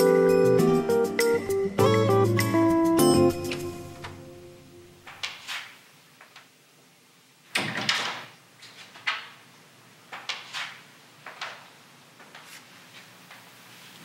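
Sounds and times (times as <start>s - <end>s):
drawer or door: 5.1s - 5.7s, 7.6s - 9.4s, 10.2s - 11.7s.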